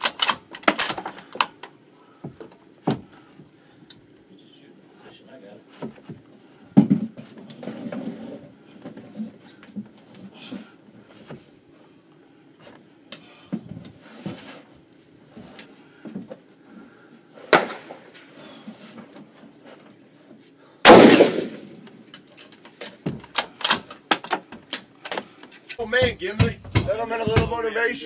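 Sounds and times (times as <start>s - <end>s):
sharp crack: 17.5s - 18.3s, 20.9s - 22.0s
rifle shot with ringing echo: 20.8s - 21.8s.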